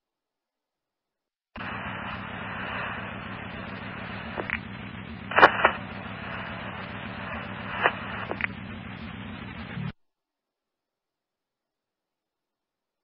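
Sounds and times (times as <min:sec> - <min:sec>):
low hum: 0:01.6 - 0:10.0
radio sharp clicks: 0:01.6 - 0:10.0
radio static hiss: 0:01.6 - 0:10.0.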